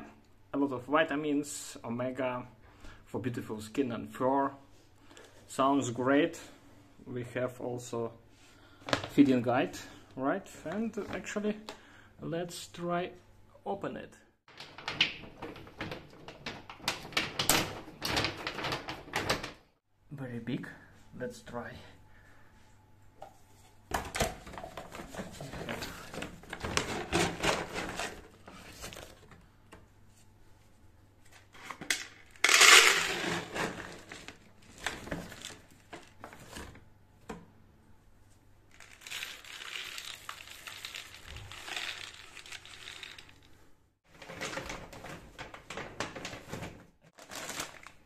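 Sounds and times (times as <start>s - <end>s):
plastic bag rustling and crinkling: 31.3s - 36.8s, 38.7s - 48.0s
dry kibble rattling: 38.7s - 43.4s.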